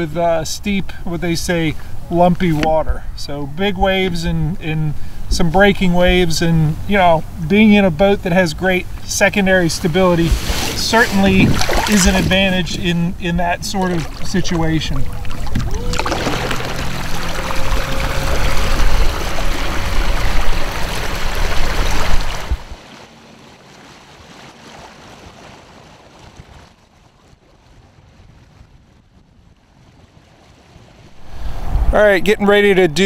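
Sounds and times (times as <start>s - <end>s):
water rushing along hull: 0.0s - 33.0s
wind on microphone: 0.8s - 22.8s, 25.0s - 33.0s
electric outboard motor whine: 15.0s - 26.1s.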